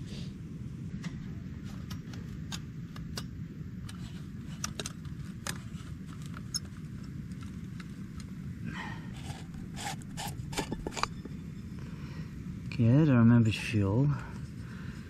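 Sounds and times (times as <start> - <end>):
clicks and taps of camping gear: 1.0 - 8.4.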